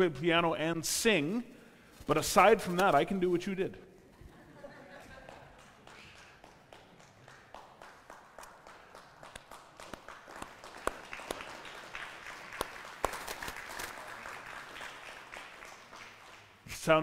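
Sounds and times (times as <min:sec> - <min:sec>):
congregation applauding: 0:05.1 - 0:17.0
sharp close claps: 0:05.2 - 0:16.6.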